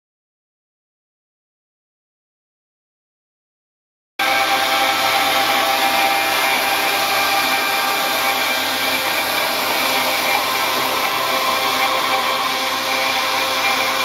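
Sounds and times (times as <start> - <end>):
router cutting wood: 4.2 - 14.0
router spindle whine: 4.2 - 14.0
vacuum hose rushing air: 4.2 - 14.0.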